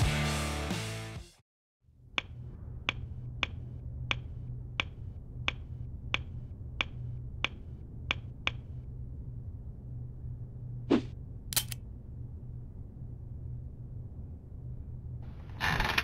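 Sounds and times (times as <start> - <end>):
music: 0.0 - 1.4
low steady hum: 1.9 - 15.6.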